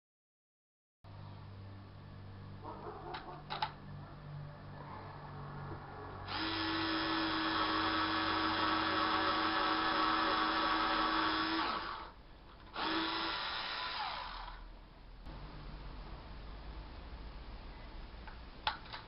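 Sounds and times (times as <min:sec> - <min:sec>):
electric screwdriver motor whining: 0:06.3 - 0:14.7.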